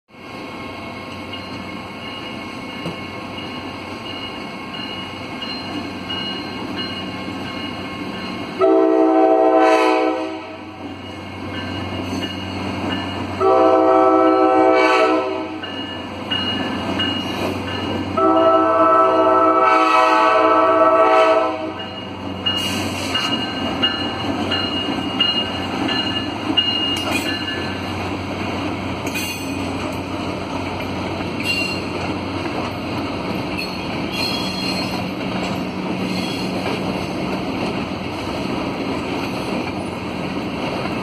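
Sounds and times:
crossing bell dinging: 0:01.1 - 0:09.0, 0:10.8 - 0:19.3, 0:21.5 - 0:28.0, 0:30.7 - 0:32.0, 0:33.3 - 0:36.6
locomotive air horn blasts: 0:08.6 - 0:10.8, 0:13.4 - 0:15.6, 0:18.2 - 0:21.8.

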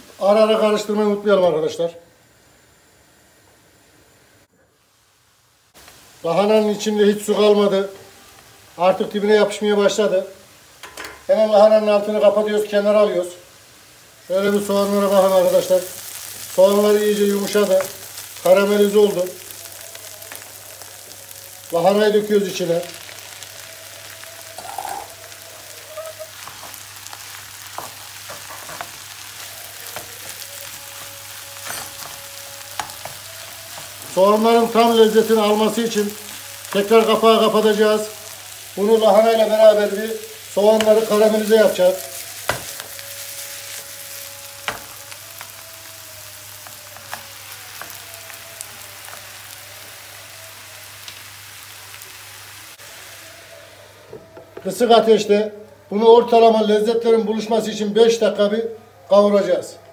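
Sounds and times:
vegetables sizzling in a frying pan: 0:00.0 - 0:58.4.

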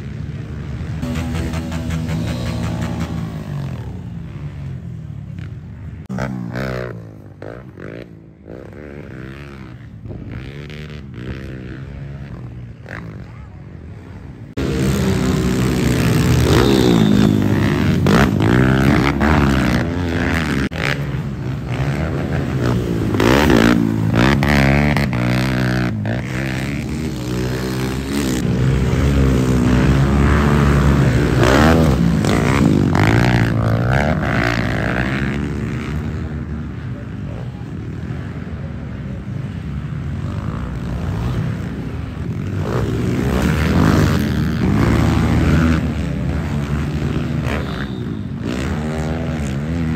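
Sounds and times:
pit bike engines revving: 0:00.0 - 0:49.9.

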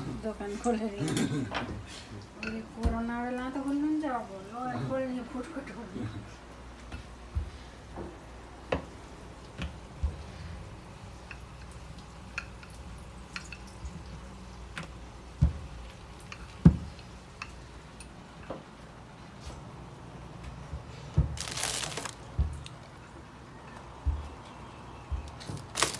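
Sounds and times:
light clicks and taps of kitchen work: 0:00.6 - 0:03.9, 0:06.8 - 0:19.5.

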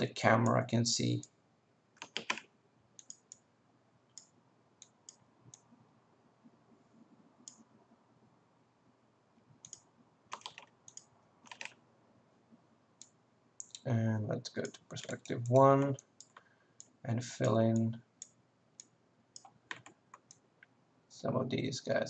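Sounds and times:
mouse and keyboard clicking: 0:02.0 - 0:02.4, 0:03.0 - 0:03.4, 0:09.6 - 0:11.8, 0:14.6 - 0:20.4.

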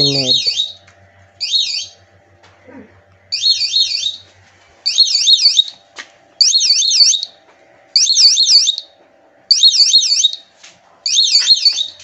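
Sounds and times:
warbling high beeper tone: 0:00.0 - 0:00.7.

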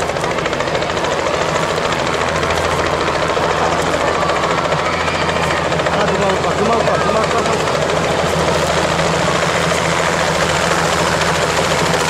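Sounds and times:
helicopter engine hum: 0:00.0 - 0:12.0
helicopter rotor chopping: 0:00.0 - 0:12.0.

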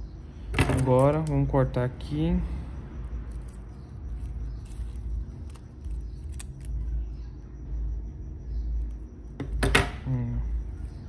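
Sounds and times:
scissors snipping: 0:03.3 - 0:06.9.

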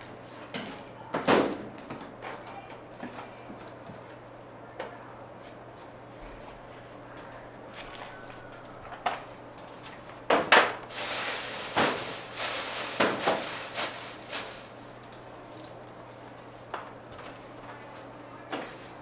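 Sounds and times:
rushing rustling noise: 0:10.9 - 0:14.8.

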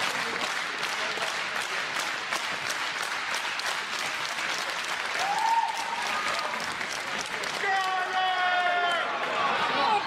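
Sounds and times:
sharp individual claps: 0:00.0 - 0:09.4
crowd applauding: 0:00.0 - 0:10.0.

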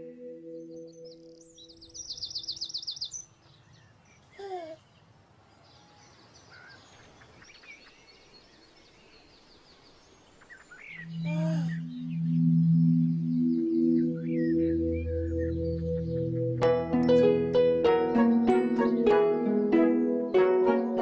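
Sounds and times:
faint bird chirps: 0:00.4 - 0:16.6
bird trilling: 0:10.5 - 0:16.6.

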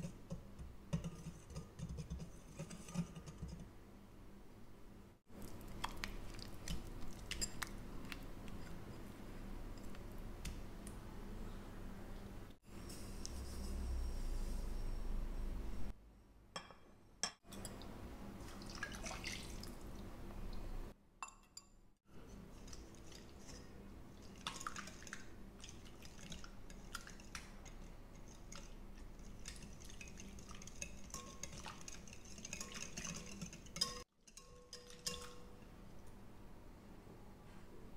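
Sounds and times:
whisk scraping glass bowl: 0:01.0 - 0:03.7, 0:24.3 - 0:35.5.

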